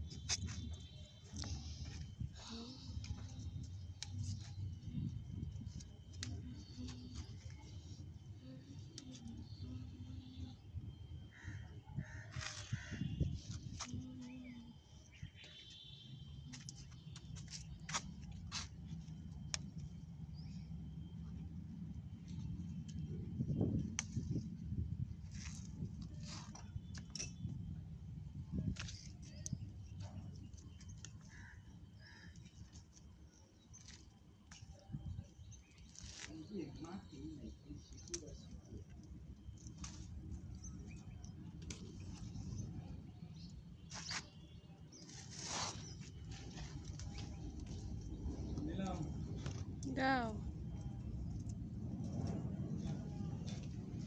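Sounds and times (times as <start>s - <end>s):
faint bird calls: 11.2s - 16.0s, 30.8s - 33.4s
low steady rumble: 46.0s - 54.0s.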